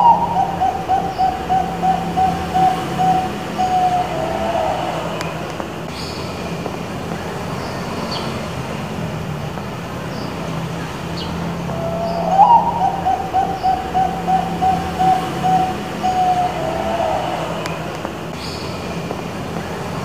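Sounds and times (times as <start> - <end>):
dove cooing: 0.0 - 5.3, 11.5 - 17.8.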